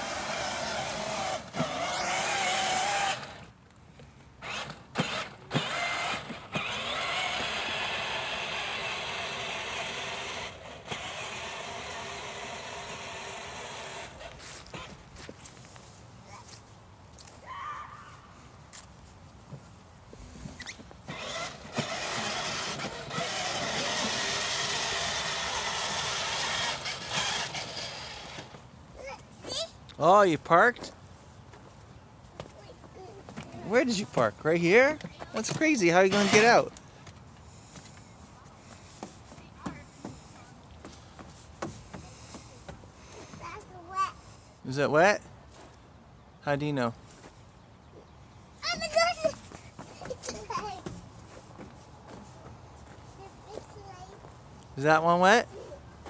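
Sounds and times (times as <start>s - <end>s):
plastic wheels rolling: 0.0s - 3.5s, 4.4s - 15.0s, 20.4s - 28.7s, 33.3s - 36.8s
toy motorcycle motor whirring: 0.0s - 3.5s, 4.4s - 15.0s, 20.6s - 29.2s, 33.7s - 36.8s.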